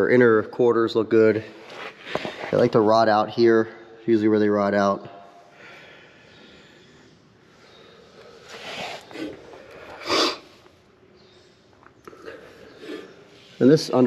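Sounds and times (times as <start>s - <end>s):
person breathing: 5.4s - 10.6s.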